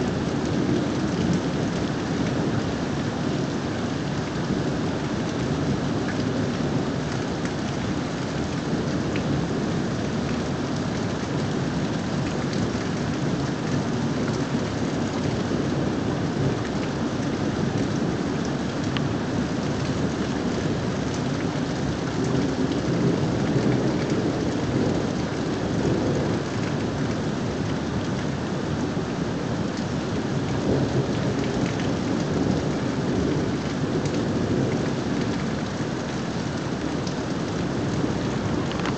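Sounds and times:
rain falling: 0:00.0 - 0:38.9
low thunder rumble: 0:36.6 - 0:38.9.

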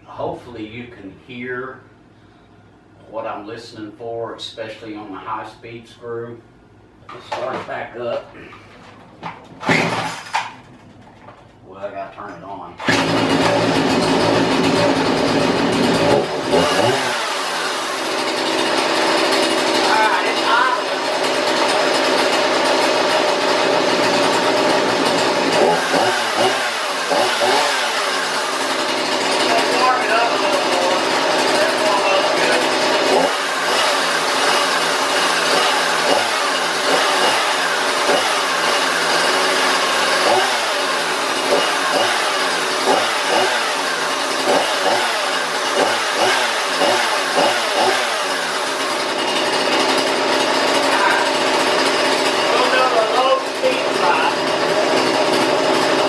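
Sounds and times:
chainsaw engine running and revving: 0:12.8 - 0:56.0.

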